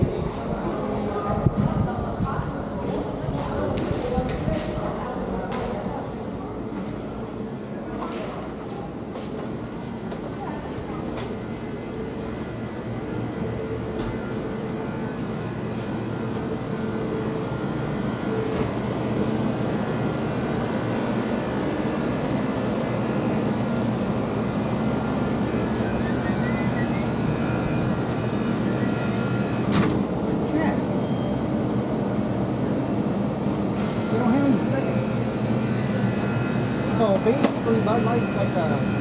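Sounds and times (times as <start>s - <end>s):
engine drone: 11.0s - 39.0s.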